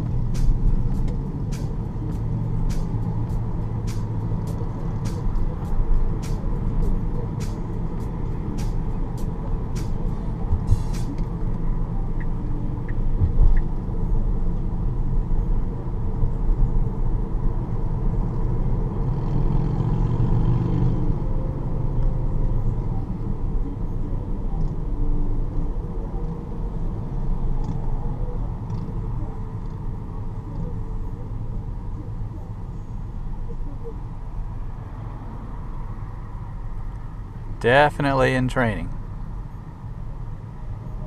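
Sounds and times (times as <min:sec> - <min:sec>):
road and tyre rumble: 0:00.0 - 0:41.0
motorcycle passing: 0:19.0 - 0:21.7.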